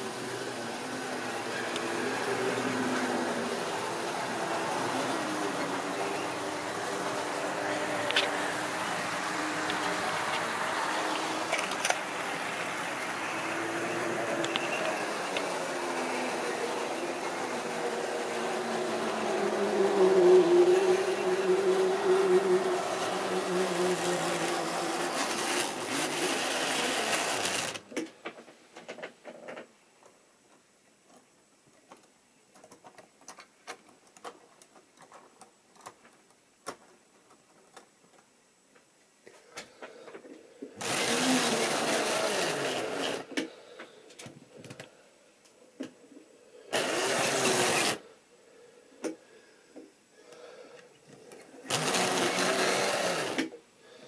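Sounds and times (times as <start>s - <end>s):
small electric motor whirring: 0.7s - 27.8s, 40.8s - 43.3s, 46.7s - 48.0s, 51.7s - 53.5s.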